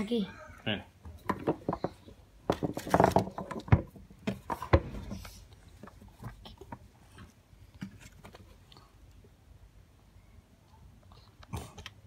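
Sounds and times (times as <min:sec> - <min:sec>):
faint handling noise: 0:01.1 - 0:09.4.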